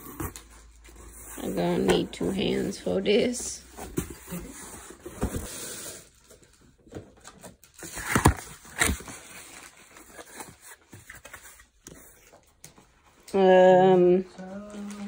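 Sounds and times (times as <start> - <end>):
cardboard box rustling: 3.6 - 5.9, 7.8 - 12.3.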